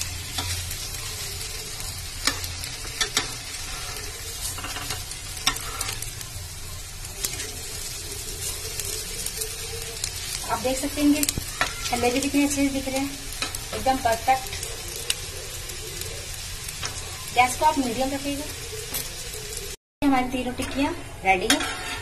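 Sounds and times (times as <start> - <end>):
metal spatula scraping a pan: 0.0 - 6.2, 7.2 - 9.4, 10.2 - 15.2, 20.4 - 22.0
patties sizzling in oil: 0.0 - 22.0.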